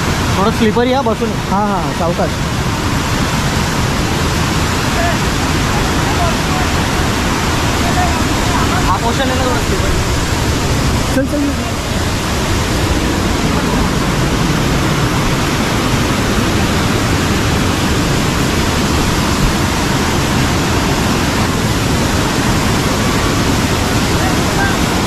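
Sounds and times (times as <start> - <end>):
waterfall rushing and splashing: 0.0 - 25.0.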